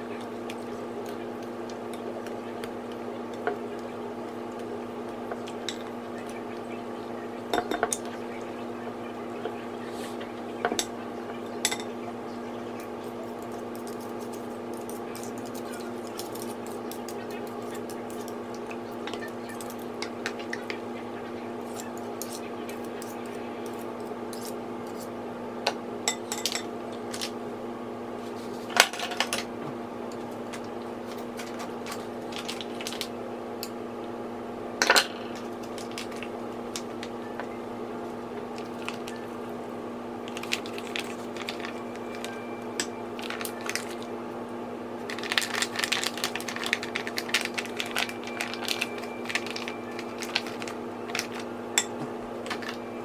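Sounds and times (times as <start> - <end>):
steady hum: 0.0 - 53.0
plastic bag crackling: 40.3 - 42.3, 43.2 - 44.0, 45.1 - 51.5.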